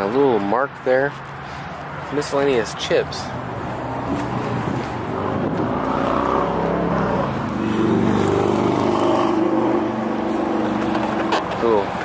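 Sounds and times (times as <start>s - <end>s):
vehicle engine revving: 3.4s - 12.0s.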